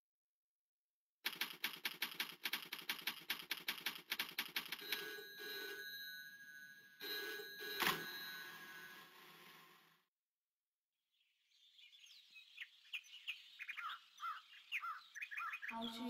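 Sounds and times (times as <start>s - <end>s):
typewriter keys clacking: 1.3s - 5.0s
telephone bell ringing: 4.7s - 10.1s.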